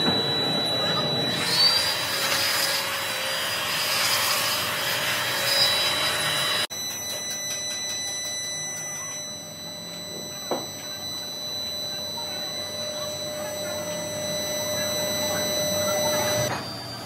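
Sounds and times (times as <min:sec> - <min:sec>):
angle grinder grinding metal: 0:00.0 - 0:07.2.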